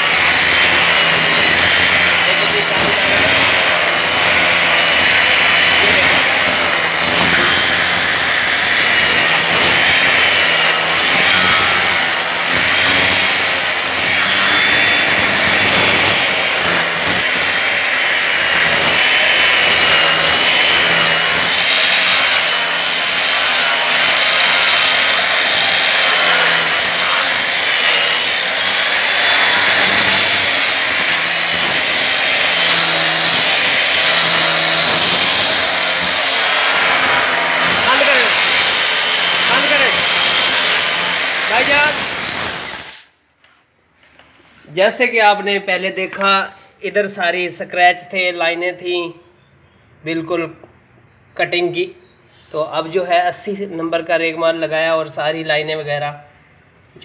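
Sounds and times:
angle grinder motor whine: 0.0 - 43.1
abrasive hissing on stone: 1.4 - 43.2.

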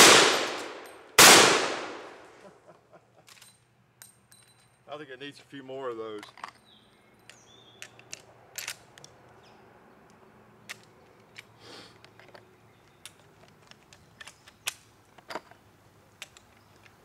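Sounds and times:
metallic clicks of rifle cartridges: 0.1 - 2.3, 3.2 - 4.8, 6.0 - 9.4, 10.0 - 17.0.

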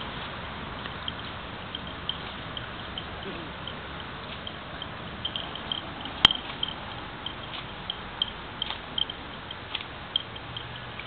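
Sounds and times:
cows chewing grass: 0.0 - 11.0
sharp click: 7.4 - 10.4.

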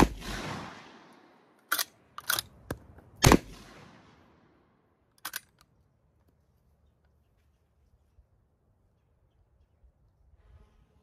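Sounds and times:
shotgun lever action clacking: 1.6 - 3.0, 5.1 - 5.7.

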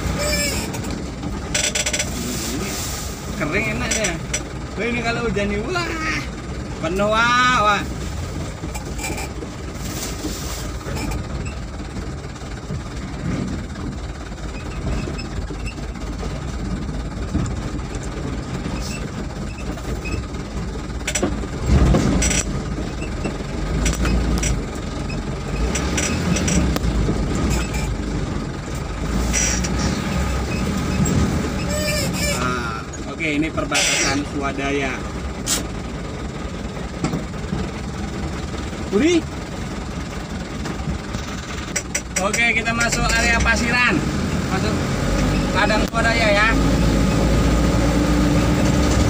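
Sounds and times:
knocks and rattles: 0.0 - 2.2, 8.3 - 32.4, 36.8 - 43.6
vehicle engine and road noise: 0.0 - 49.0
vehicle jolt: 0.0 - 49.0.

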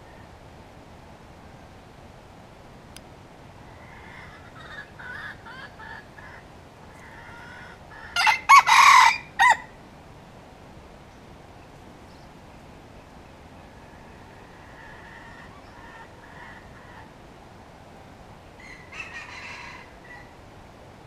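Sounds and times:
rooster crowing: 7.0 - 9.8, 18.6 - 20.4.

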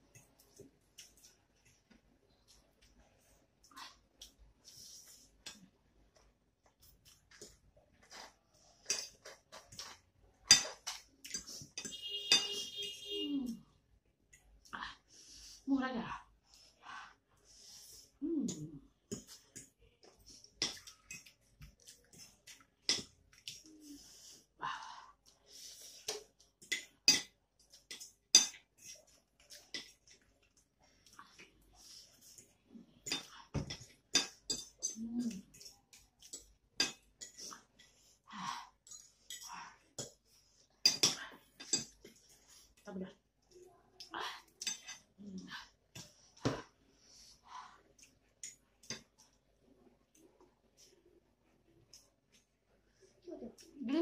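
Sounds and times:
soft eating sounds: 0.0 - 54.0
forks and spoons clinking on plates: 8.8 - 13.0, 33.0 - 37.5, 40.8 - 42.2, 44.6 - 45.1.

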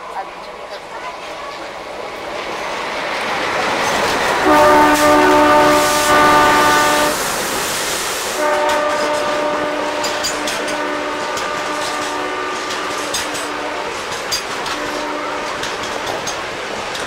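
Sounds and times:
freight train wagons rumbling: 0.0 - 17.0
locomotive horn blasts: 4.4 - 7.2, 8.4 - 14.0, 14.6 - 16.0.

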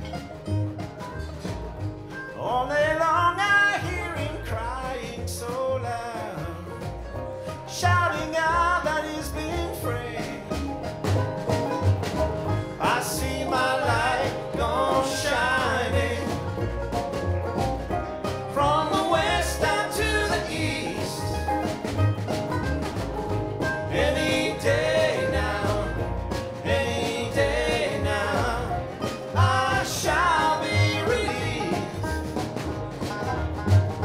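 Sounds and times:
acoustic country-folk band playing: 0.0 - 34.0
person singing: 12.7 - 16.6, 18.5 - 21.5, 23.9 - 32.2.

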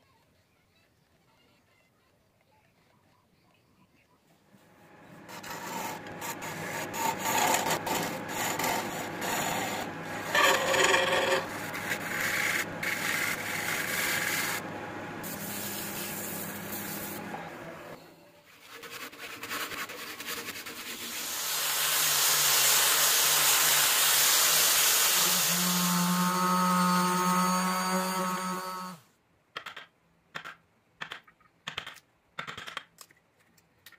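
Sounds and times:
lathe low hum: 4.5 - 18.2, 25.2 - 29.0
angle grinder sanding wood: 4.9 - 17.6, 22.2 - 29.0
turning tool scraping wood: 5.1 - 17.3.

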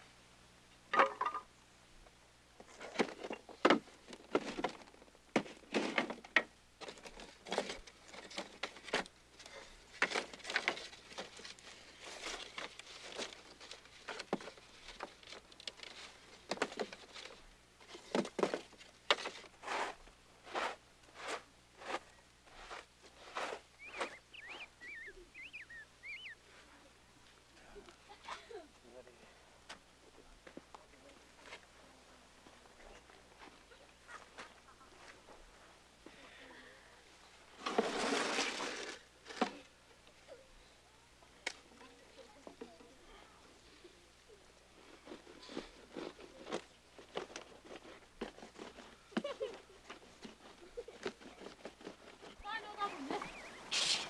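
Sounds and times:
wooden knocks and clatters: 0.9 - 1.5
short high squeaks: 23.8 - 26.4.

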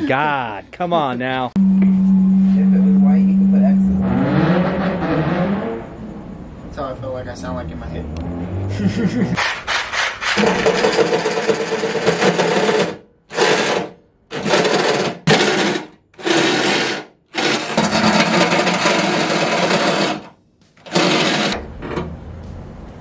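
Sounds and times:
reciprocating saw cutting steel: 9.4 - 21.7.

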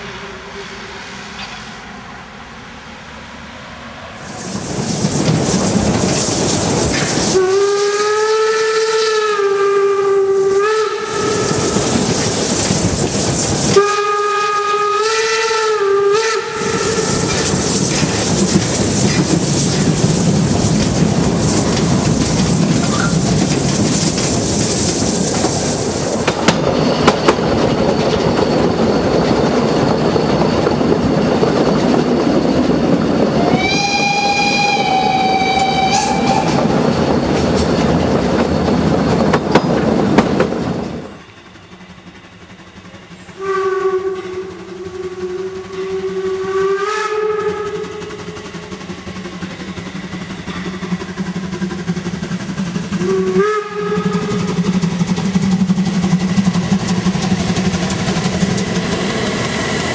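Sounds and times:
train running on track: 0.0 - 59.9
steam hissing: 4.2 - 59.9
high-pitched steam whistle: 7.0 - 23.5, 28.0 - 37.0, 43.2 - 51.8, 52.7 - 56.3
low steam whistle blasts: 7.2 - 12.2, 13.6 - 17.8, 33.3 - 36.8, 43.3 - 48.7, 52.7 - 55.2.

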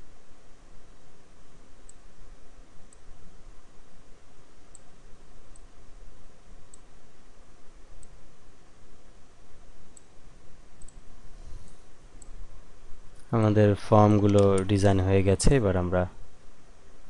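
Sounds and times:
background hiss and hum: 0.0 - 17.0
computer mouse clicking: 10.8 - 11.0, 14.1 - 14.8.

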